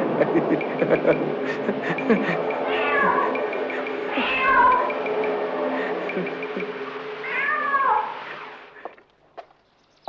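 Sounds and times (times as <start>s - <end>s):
low hum: 0.0s - 9.1s
cat meowing: 2.6s - 3.4s, 4.1s - 5.0s, 7.2s - 8.2s.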